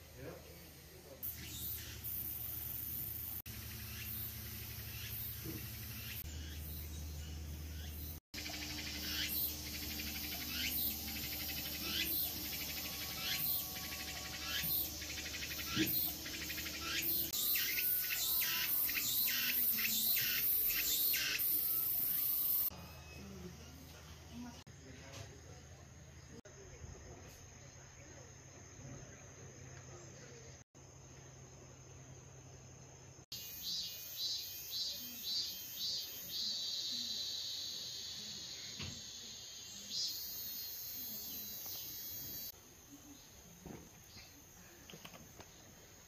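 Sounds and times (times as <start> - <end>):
insect chirping calls: 0.0 - 23.2, 26.3 - 46.0
insects shrilling: 7.8 - 22.8, 33.3 - 42.6.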